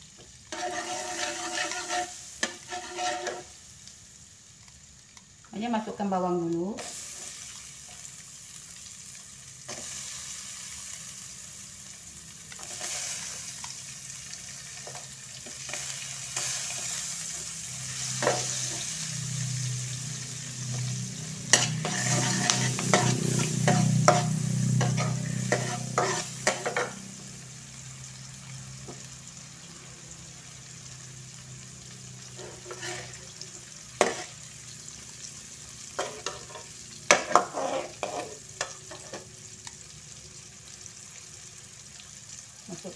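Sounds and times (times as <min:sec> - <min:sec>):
shallots sizzling in hot oil: 0:00.0 - 0:42.9
metal spatula scraping wok: 0:00.5 - 0:03.6, 0:12.6 - 0:13.5, 0:14.8 - 0:27.2, 0:32.3 - 0:34.6, 0:35.9 - 0:39.3.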